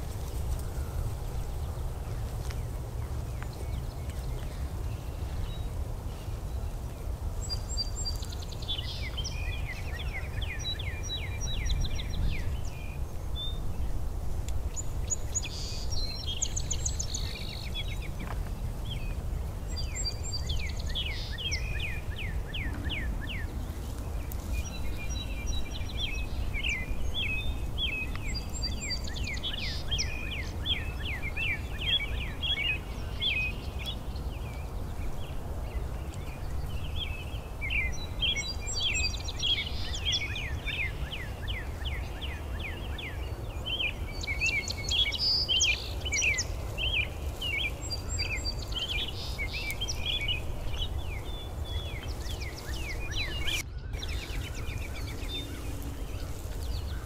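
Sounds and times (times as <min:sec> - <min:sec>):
songbirds singing: 0:00.0 - 0:57.0
steady low rumble: 0:46.4 - 0:57.0.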